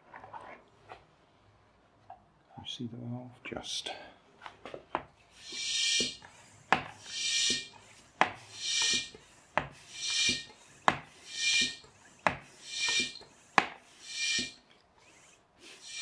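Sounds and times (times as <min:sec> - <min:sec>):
air hiss: 0:05.3 - 0:14.6, 0:15.2 - 0:16.0
pump stroke knock: 0:08.2 - 0:13.8.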